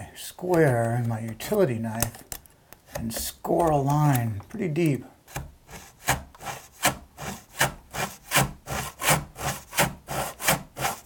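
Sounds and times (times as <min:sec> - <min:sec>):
back saw cutting wood: 0:05.3 - 0:11.0.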